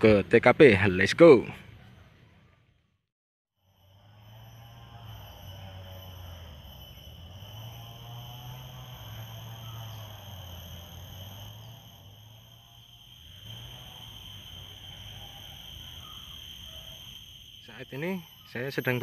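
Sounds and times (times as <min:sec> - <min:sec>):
insects chorus: 0:03.6 - 0:19.0
low hum: 0:03.7 - 0:18.4.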